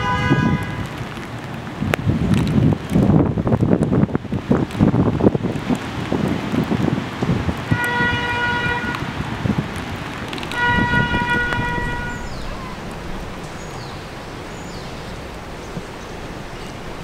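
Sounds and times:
train horn blasts: 0.0s - 1.0s, 7.7s - 9.1s, 10.5s - 12.6s
wind: 0.0s - 17.0s
track rumble: 8.8s - 17.0s.

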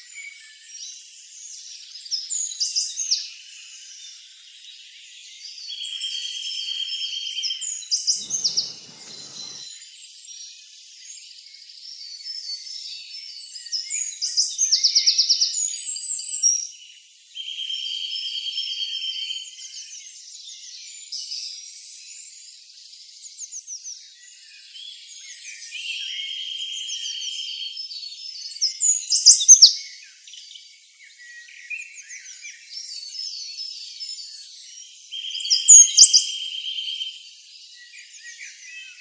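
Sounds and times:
birds chirping: 8.1s - 9.7s.

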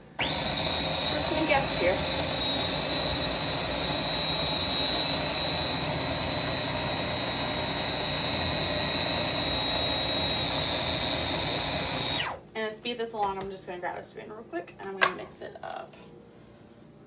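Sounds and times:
food processor motor whine: 0.0s - 12.4s.

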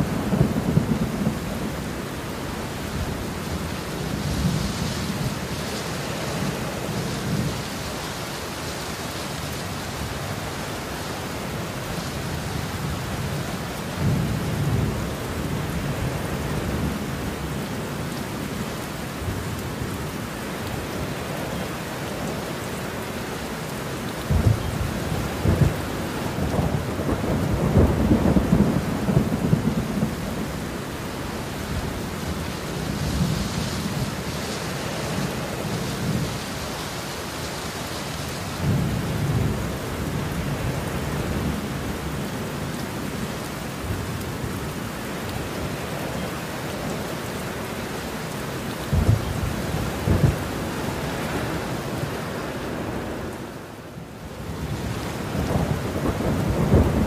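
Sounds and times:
thunder rumbling and cracking: 0.0s - 1.8s, 24.2s - 30.6s, 48.8s - 51.1s, 54.6s - 57.0s
heavy rain falling: 0.0s - 57.0s.

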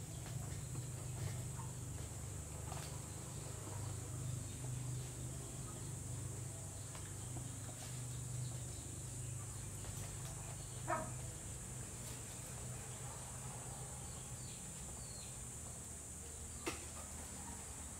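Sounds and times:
animal call: 10.8s - 11.2s.

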